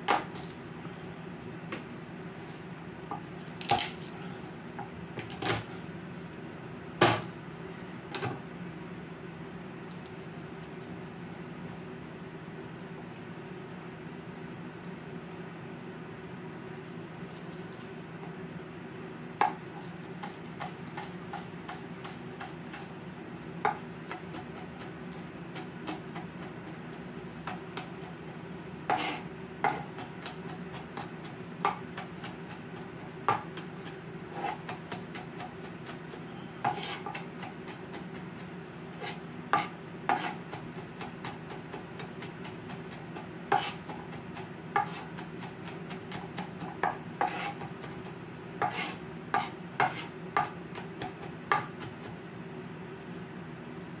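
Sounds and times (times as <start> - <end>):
steady low hum: 0.0 - 54.0
knife chopping on plastic board: 28.9 - 38.3, 39.0 - 52.2.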